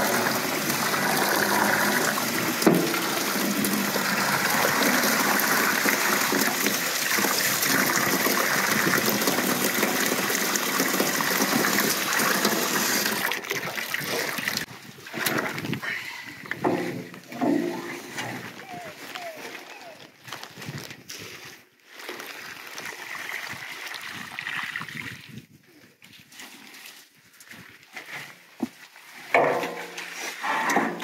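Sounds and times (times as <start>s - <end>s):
hose water splashing into bathtub: 0.0s - 20.0s.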